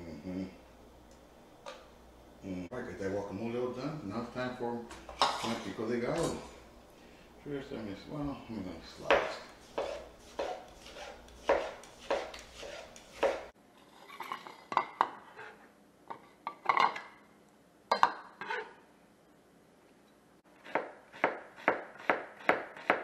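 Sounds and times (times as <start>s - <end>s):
knife chopping on cutting board: 9.0s - 13.5s.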